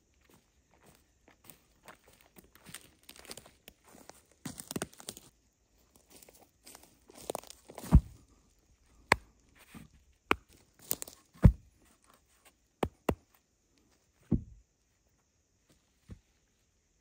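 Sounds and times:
sticks and branches cracking: 0:04.4 - 0:05.3, 0:07.1 - 0:08.0, 0:10.2 - 0:11.5.

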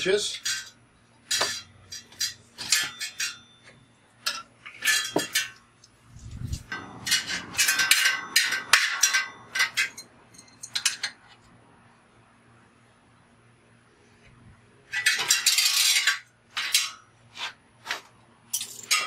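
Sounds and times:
wrench clinking on metal: 0:00.3 - 0:05.6, 0:06.6 - 0:11.2, 0:18.5 - 0:19.0.

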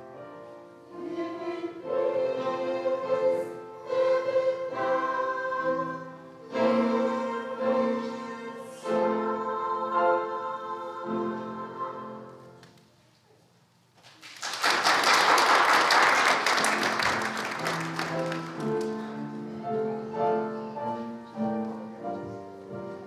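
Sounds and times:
choir singing: 0:00.1 - 0:12.6
congregation applauding: 0:14.0 - 0:19.2.

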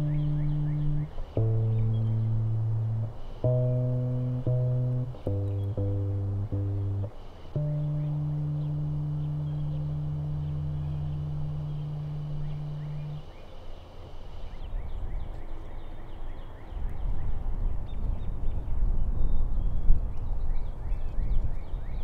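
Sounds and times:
held low music note: 0:00.0 - 0:13.4
bird chirps: 0:00.0 - 0:16.9
low rumbling background noise: 0:00.0 - 0:22.0.

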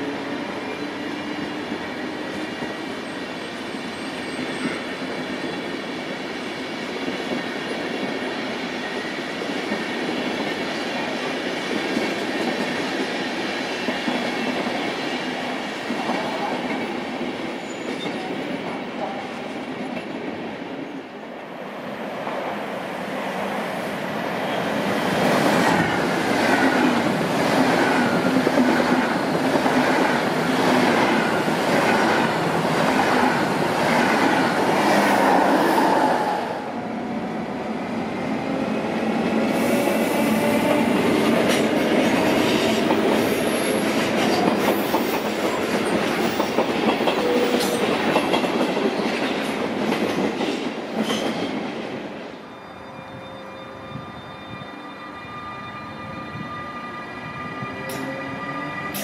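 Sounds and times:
train wheels clickety-clack: 0:00.0 - 0:20.8, 0:38.7 - 0:52.2, 0:57.8 - 0:58.2
train wheel rumble and whine: 0:00.0 - 0:59.0.

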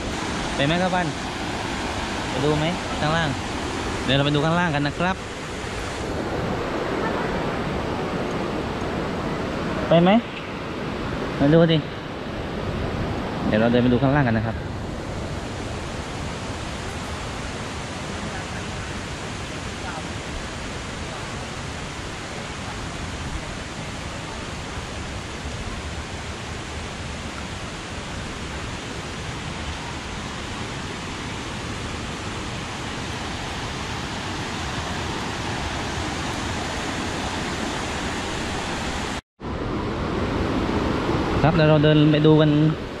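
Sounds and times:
waterfall roaring: 0:00.0 - 0:43.0.

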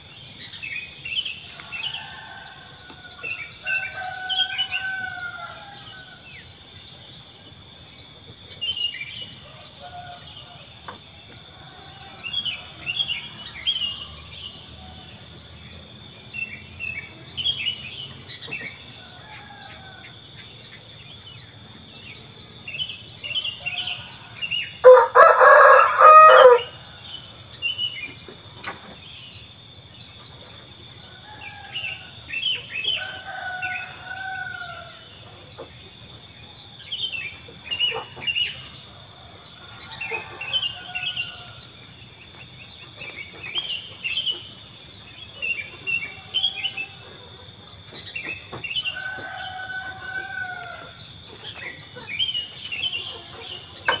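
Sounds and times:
insect chorus: 0:00.0 - 0:54.0
rooster crowing: 0:01.5 - 0:06.2, 0:23.2 - 0:27.2, 0:31.1 - 0:35.1, 0:39.0 - 0:41.8, 0:48.7 - 0:51.1.

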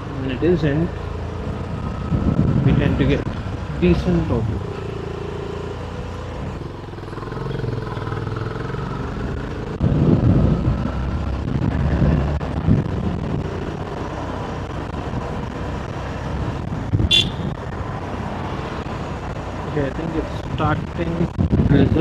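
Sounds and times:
motorcycle engine drone: 0:00.0 - 0:22.0
road traffic: 0:00.0 - 0:22.0
wind buffeting microphone: 0:01.4 - 0:04.7, 0:09.3 - 0:22.0.

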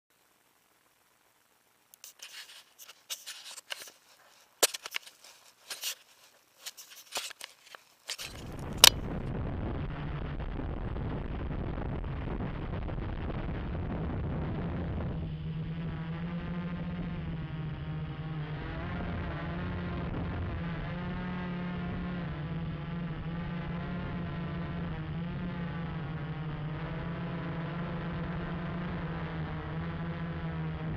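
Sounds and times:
camera handling clicks: 0:06.7 - 0:09.0
quadcopter motors humming: 0:14.7 - 0:30.9.

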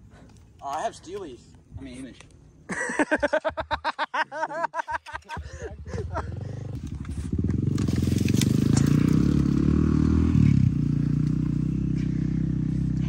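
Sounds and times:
dirt bike engine revving: 0:05.8 - 0:13.0
wheel spinning in mud: 0:06.8 - 0:10.6.

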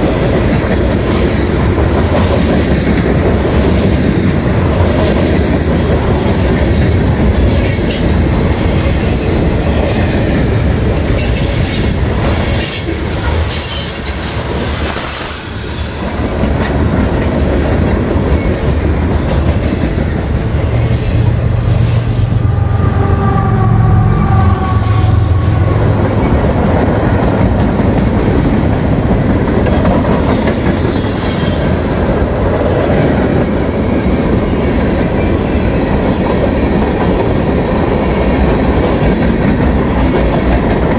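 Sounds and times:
freight train wheels clattering: 0:00.0 - 0:23.1, 0:24.3 - 0:40.9
low drone: 0:20.2 - 0:27.4.

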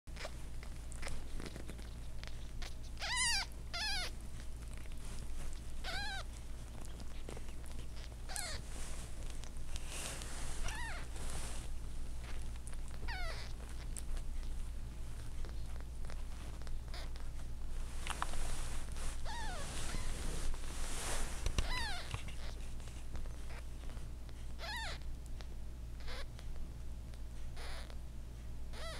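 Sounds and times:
low steady hum: 0:00.1 - 0:28.9
kittens mewing: 0:00.2 - 0:04.5, 0:05.8 - 0:08.7, 0:10.6 - 0:11.2, 0:12.7 - 0:14.1, 0:21.6 - 0:22.6, 0:24.6 - 0:25.0, 0:27.6 - 0:28.0.

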